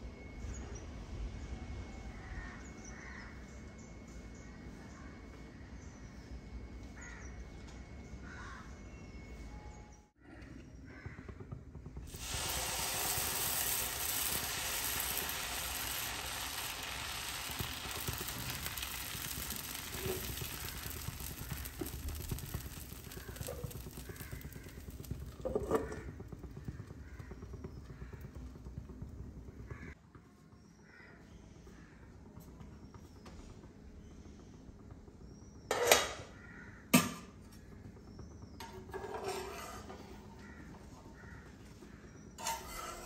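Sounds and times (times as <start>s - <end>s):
batter sizzling on a hot pan: 10.9s - 30.0s, 42.4s - 43.0s.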